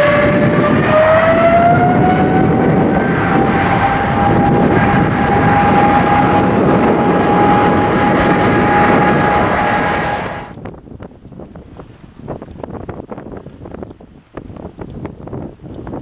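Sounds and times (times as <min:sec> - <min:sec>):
jet engines spooling up: 0:00.0 - 0:10.6.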